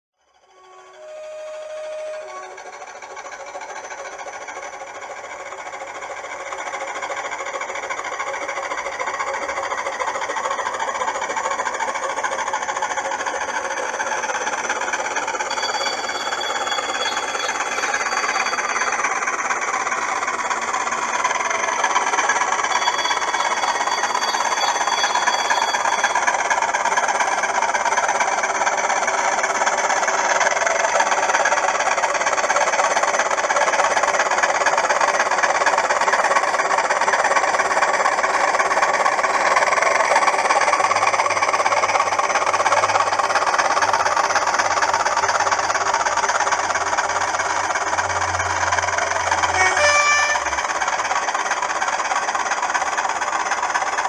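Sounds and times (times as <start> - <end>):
diesel engine through small loudspeaker: 0.6 - 54.0
high two-note tone: 49.5 - 50.6.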